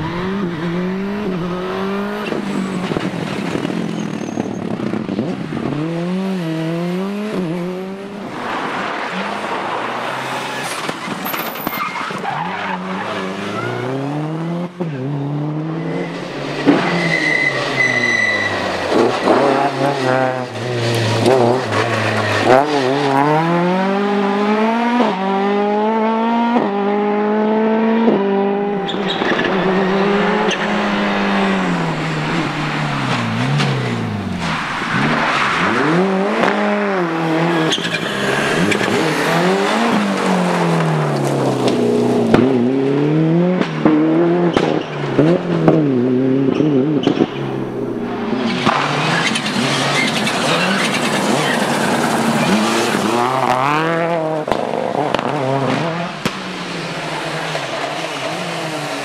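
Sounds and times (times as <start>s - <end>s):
rally cars passing at speed: 0.0s - 59.0s.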